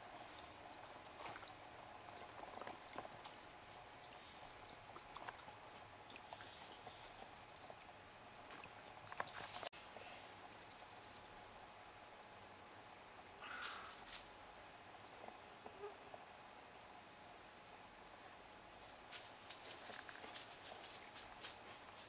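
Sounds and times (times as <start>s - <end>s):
stream trickling: 0.0s - 9.7s
small ticks: 10.5s - 11.4s, 13.4s - 14.3s, 18.8s - 22.0s.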